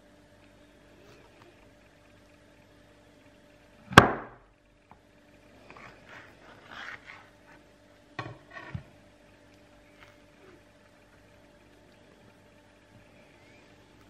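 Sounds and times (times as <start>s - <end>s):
soap rubbing on tabletop: 5.6s - 7.7s.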